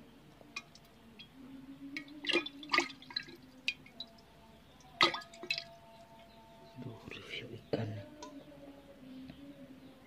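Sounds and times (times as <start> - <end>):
water dripping into glass jar: 0.4 - 6.4.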